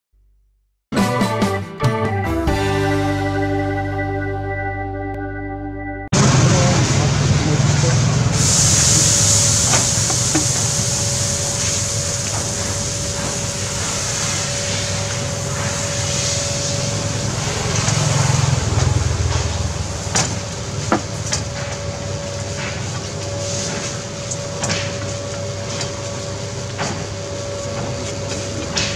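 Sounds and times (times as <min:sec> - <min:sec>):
batter sizzling on a griddle: 0:08.4 - 0:18.7.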